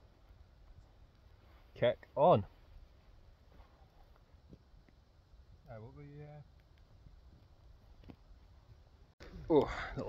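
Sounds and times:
faint ticks: 6.5s - 8.2s.

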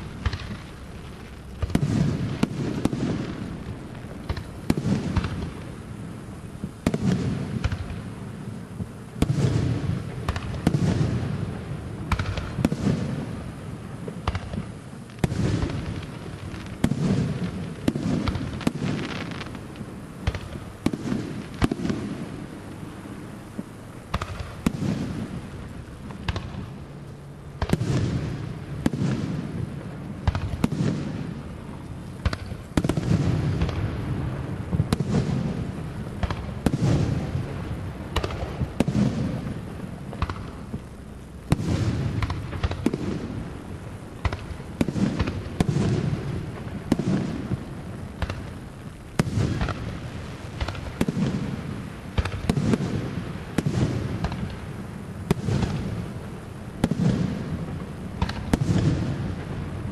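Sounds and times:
fireworks bursting with booms: 0.0s - 59.9s.

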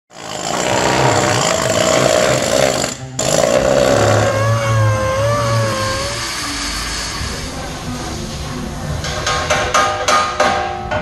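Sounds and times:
grinder whine: 0.1s - 7.6s
air tool on steel: 0.1s - 8.1s.

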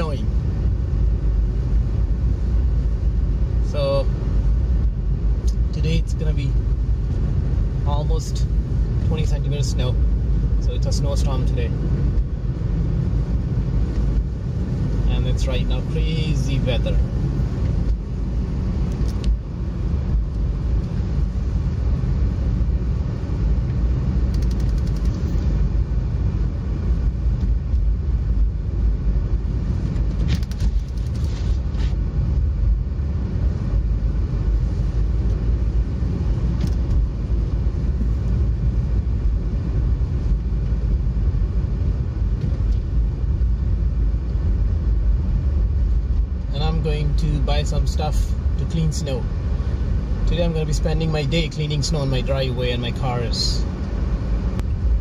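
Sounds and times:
car engine and tyres on snow: 0.0s - 55.0s
faint clicks: 24.3s - 25.3s.

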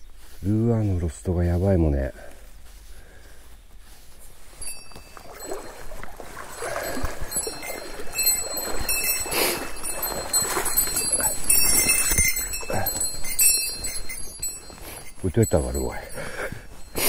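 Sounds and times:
rustling and scuffing: 0.0s - 17.0s
small bell jingling: 4.5s - 17.0s.

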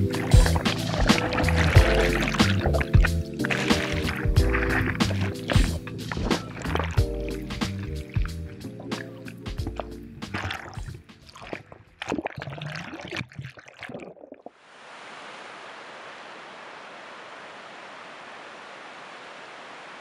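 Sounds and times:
surf breaking on shore: 0.0s - 7.0s
water splashing around camera: 0.0s - 14.6s.

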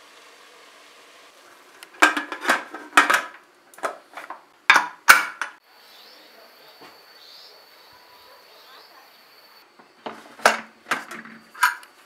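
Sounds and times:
metal lid clanking and scraping: 1.9s - 5.6s, 10.0s - 11.9s.

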